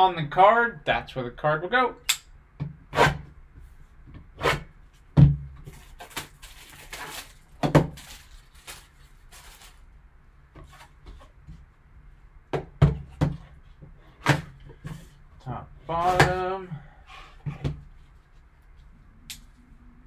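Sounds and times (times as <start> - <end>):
knocks and thuds on a table: 5.2 - 5.6, 12.5 - 13.5
plastic wrap crinkling: 5.7 - 9.9.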